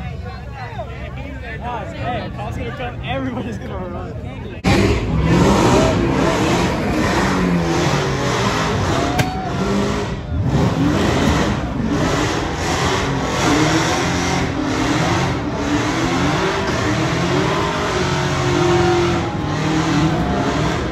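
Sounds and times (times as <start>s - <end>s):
car engine revving hard: 4.6s - 20.9s.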